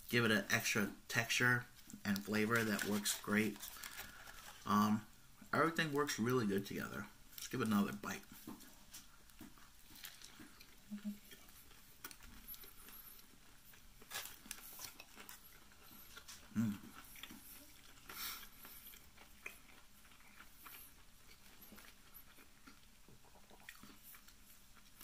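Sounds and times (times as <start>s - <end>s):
person chewing: 8.2s - 25.0s.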